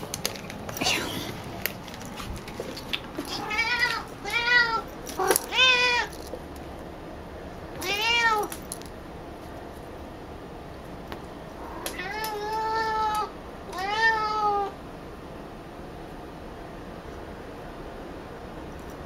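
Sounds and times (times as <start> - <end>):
cat meowing insistently: 3.3 - 6.1, 7.8 - 8.5, 11.6 - 14.8.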